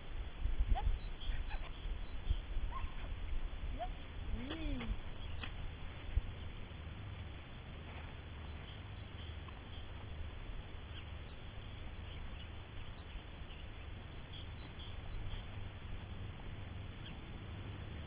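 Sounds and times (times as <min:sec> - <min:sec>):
wind rumble on microphone: 0:00.0 - 0:06.6.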